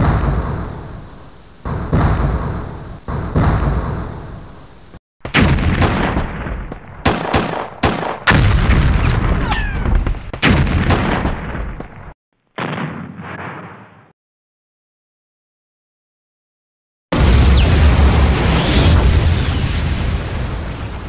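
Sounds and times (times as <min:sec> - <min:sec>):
gunshots and booms: 0:00.0 - 0:04.6, 0:05.2 - 0:12.0, 0:12.6 - 0:14.1, 0:17.1 - 0:21.0
explosion: 0:05.3 - 0:06.7, 0:08.3 - 0:09.8, 0:17.1 - 0:21.0.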